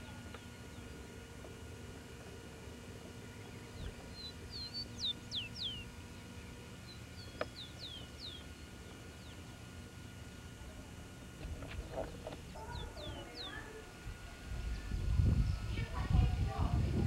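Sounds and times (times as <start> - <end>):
songbird whistling: 3.8 - 5.9, 6.8 - 8.6.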